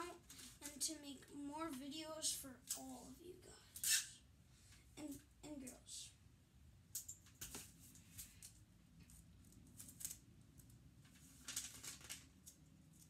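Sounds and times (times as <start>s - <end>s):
wrapping paper rustling: 0.0s - 0.9s, 11.0s - 13.0s.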